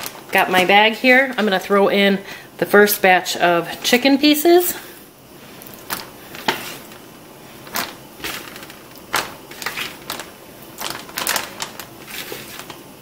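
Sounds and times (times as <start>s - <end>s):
plastic bag crinkling: 5.5s - 13.0s.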